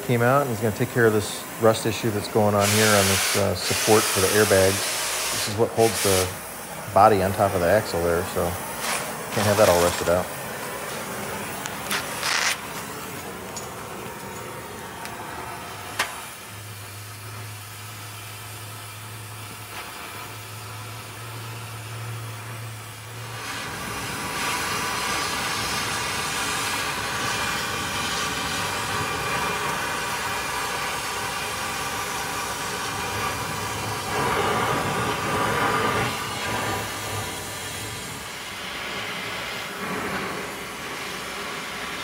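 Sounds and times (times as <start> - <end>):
cutting torch hissing: 0.0 - 42.0.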